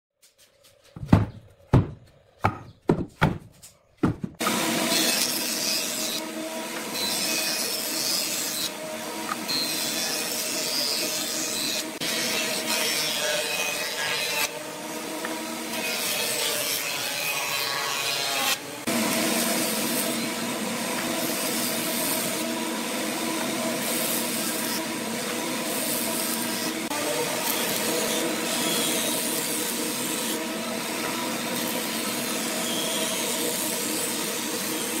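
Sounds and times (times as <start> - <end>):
sharp knocks on wood: 1.0 - 4.4
wood lathe motor hum: 18.6 - 35.0.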